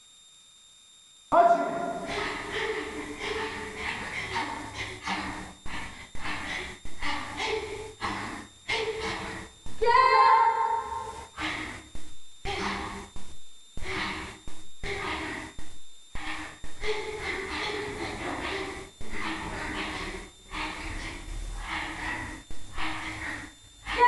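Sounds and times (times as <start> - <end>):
people shouting commands: 1.3 - 2.6, 9.8 - 11.1.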